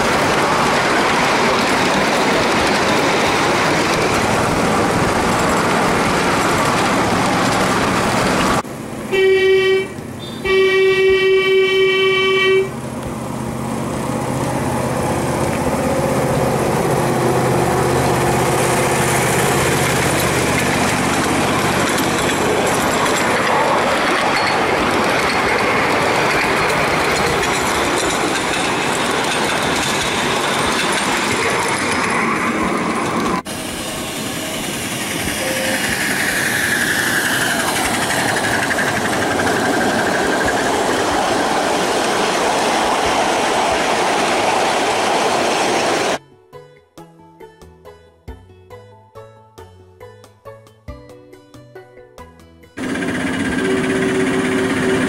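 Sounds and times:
model train rolling on track: 0.0 - 46.2, 52.8 - 55.0
train horn blasts: 9.1 - 12.8, 35.4 - 36.0.

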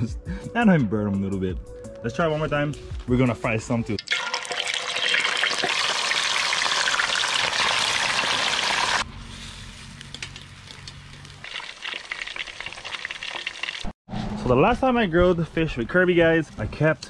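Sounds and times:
fish sizzling in hot oil: 4.1 - 9.0, 11.3 - 13.9.

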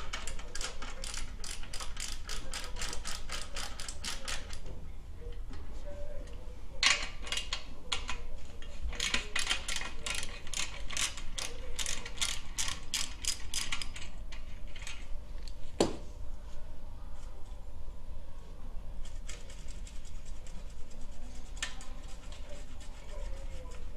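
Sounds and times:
ratchet wrench clicking: 0.1 - 4.6.

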